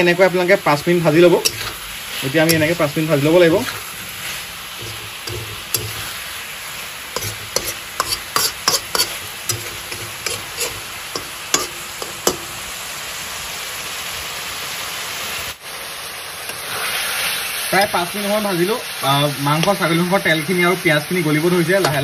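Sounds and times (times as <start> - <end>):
food sizzling in a pan: 0.0 - 22.0
metal spatula scraping a pan: 0.8 - 6.4, 7.1 - 12.7.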